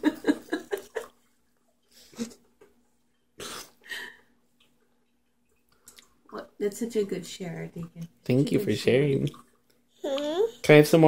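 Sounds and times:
toddler chewing apple: 0:10.0 - 0:10.6.

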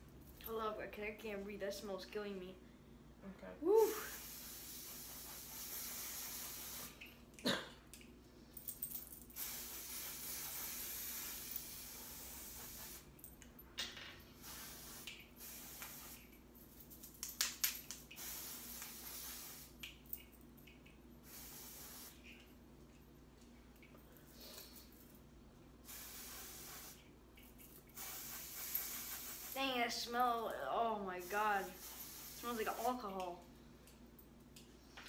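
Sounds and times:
aerosol can hissing: 0:03.9 - 0:07.1, 0:09.4 - 0:13.1, 0:14.4 - 0:16.4, 0:18.1 - 0:19.8, 0:21.2 - 0:22.3, 0:25.8 - 0:27.1, 0:27.9 - 0:29.8, 0:31.2 - 0:33.0.

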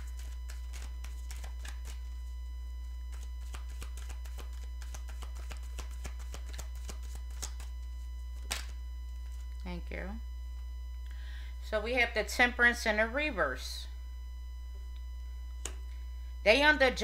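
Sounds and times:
cards being shuffled: 0:00.0 - 0:02.1, 0:03.1 - 0:07.8, 0:08.4 - 0:09.4
steady low hum: 0:00.0 - 0:17.0.

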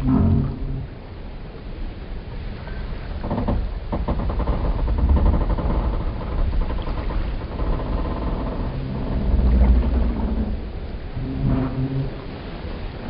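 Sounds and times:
wooden boat timbers creaking: 0:00.0 - 0:00.9, 0:02.7 - 0:12.8
deep rumble: 0:00.0 - 0:01.8, 0:02.4 - 0:13.0.

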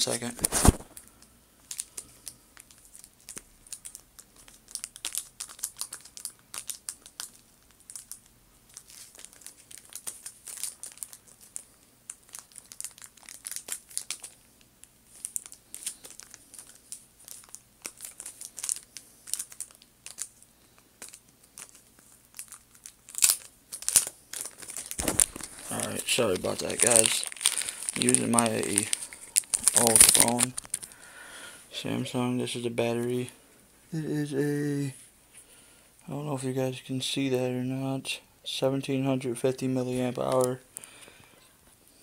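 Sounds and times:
crinkling and rustling: 0:00.0 - 0:31.0, 0:39.8 - 0:40.9.

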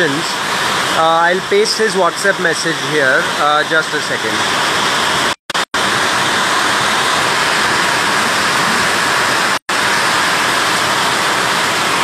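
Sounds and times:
heavy rain falling: 0:05.8 - 0:12.0.

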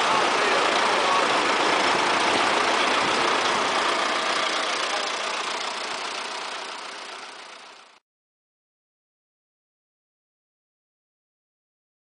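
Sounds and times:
tractor diesel engines running: 0:00.0 - 0:08.0.

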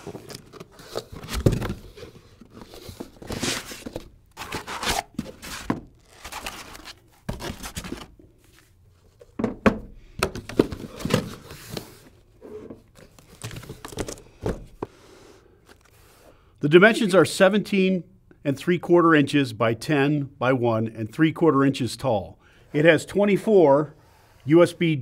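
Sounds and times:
cardboard rustling and scraping: 0:00.0 - 0:09.4, 0:10.4 - 0:14.9.

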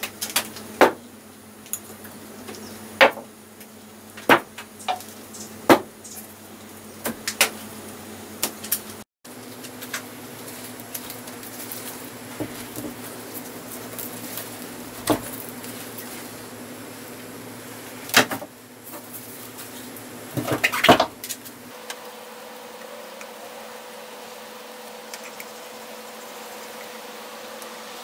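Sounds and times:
steady low hum: 0:00.0 - 0:28.0
knocks and rustles of handling: 0:08.5 - 0:16.4.

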